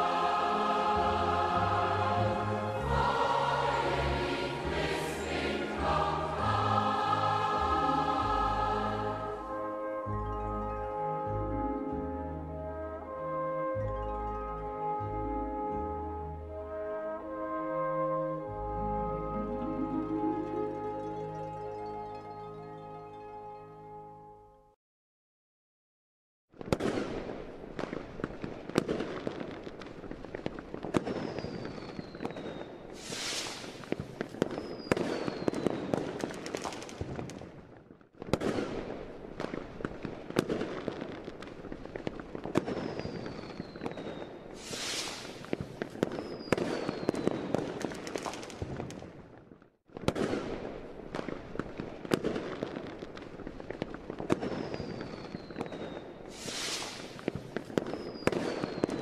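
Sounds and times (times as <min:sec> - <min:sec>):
fireworks crackling and banging: 0:00.0 - 0:03.4, 0:26.6 - 0:59.0
fizzing hiss: 0:33.0 - 0:33.9, 0:44.6 - 0:45.5, 0:56.3 - 0:57.3
whistles falling in pitch: 0:46.2 - 0:47.4, 0:57.9 - 0:59.0.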